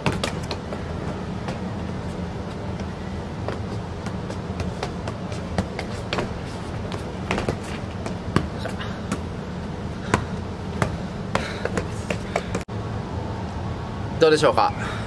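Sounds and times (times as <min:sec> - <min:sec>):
ball knocking against feet: 0:00.0 - 0:01.7, 0:02.4 - 0:09.3, 0:10.0 - 0:12.6
steady low hum: 0:00.0 - 0:15.0.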